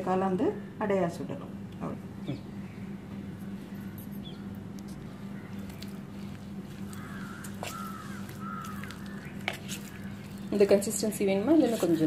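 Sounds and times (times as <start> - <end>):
steady low hum: 0.0 - 12.0
batter squishing: 4.8 - 12.0.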